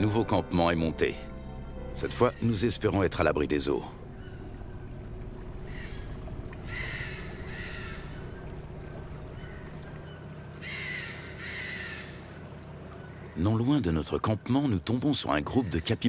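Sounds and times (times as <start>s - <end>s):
harsh wild animal calls: 4.0s - 13.4s.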